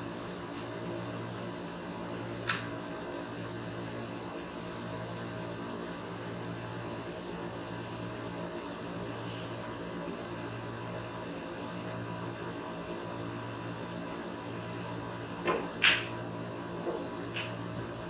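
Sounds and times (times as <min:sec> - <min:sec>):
steady low hum: 0:00.0 - 0:18.0
cue tip striking ball click: 0:15.4 - 0:16.1
snooker balls colliding click: 0:15.4 - 0:16.2.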